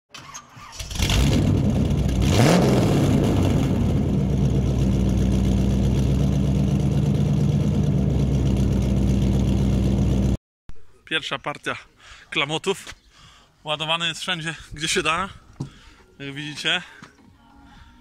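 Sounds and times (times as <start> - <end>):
car engine revving and idling: 0.9 - 10.4.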